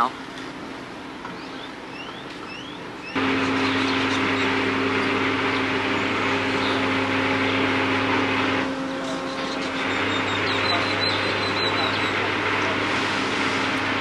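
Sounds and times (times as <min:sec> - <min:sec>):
boat engine hum: 0:00.0 - 0:14.0
rushing water noise: 0:09.6 - 0:14.0.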